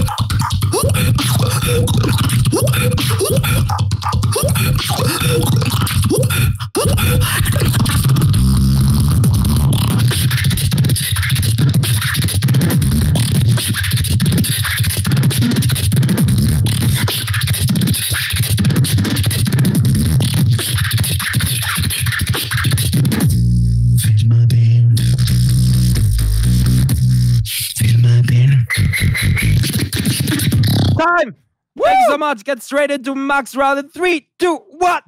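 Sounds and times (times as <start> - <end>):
heavy bass line: 0.0 - 10.9, 23.2 - 29.7
beatboxing vocal percussion: 0.0 - 35.0.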